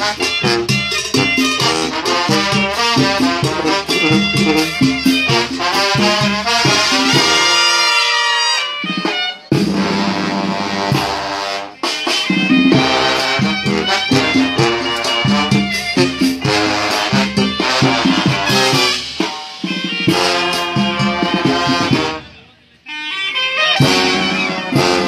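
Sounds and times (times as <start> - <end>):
brass band playing: 0.0 - 25.0.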